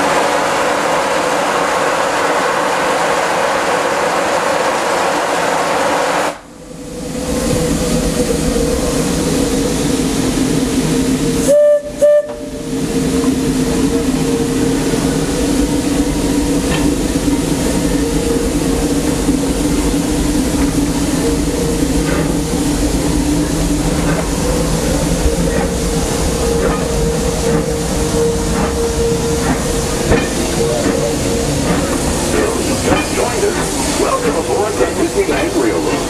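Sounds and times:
steam hissing: 0.0 - 36.0
steam whistle toots: 11.4 - 12.7.

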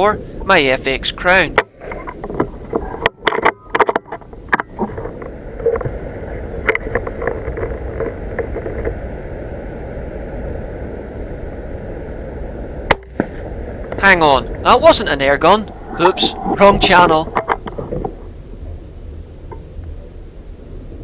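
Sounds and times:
faint hum: 0.0 - 21.0
steady rushing noise: 4.4 - 21.0.

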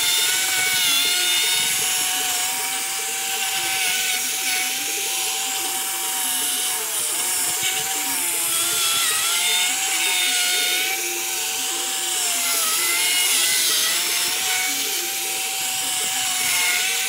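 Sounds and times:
cordless drill motor whine: 0.0 - 17.0.

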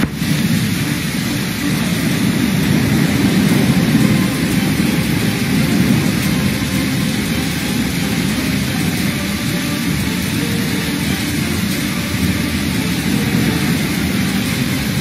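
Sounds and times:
floodwater rushing down street: 0.0 - 15.0
heavy rain: 0.0 - 15.0.

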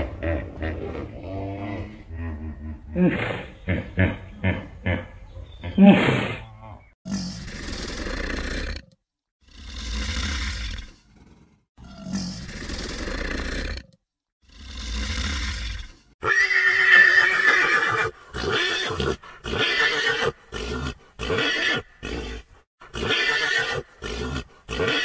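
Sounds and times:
low growls: 0.0 - 3.6, 5.1 - 16.2
horse whinnying: 16.2 - 22.4, 23.0 - 25.0.

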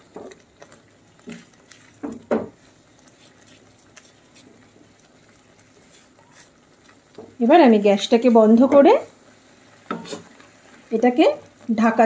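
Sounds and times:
spatula stirring and scraping in pan: 0.0 - 12.0.

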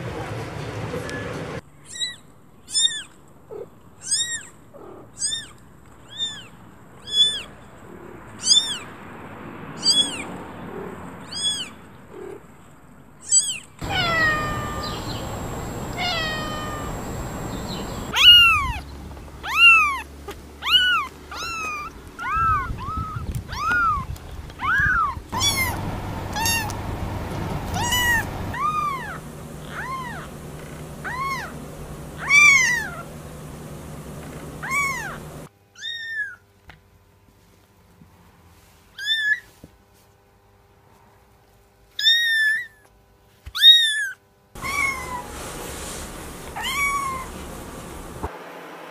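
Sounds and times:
kittens meowing: 1.9 - 7.5, 8.4 - 8.9, 11.2 - 12.4, 13.2 - 18.8, 19.4 - 26.8, 27.4 - 33.1, 34.6 - 36.4, 43.6 - 45.3, 46.6 - 47.3.

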